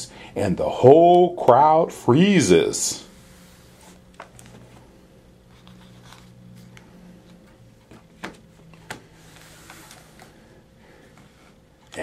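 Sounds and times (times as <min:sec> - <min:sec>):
faint steady hum: 0:00.0 - 0:12.0
book page turning: 0:03.8 - 0:10.4.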